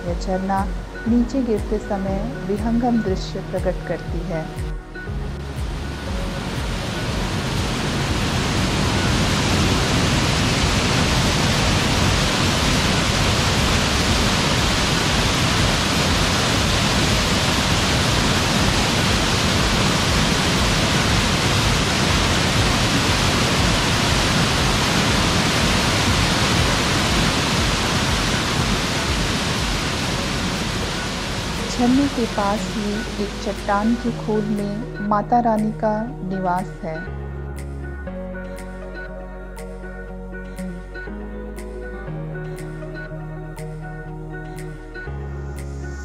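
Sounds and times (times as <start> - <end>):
waterfall rushing over rocks: 6.2 - 33.6.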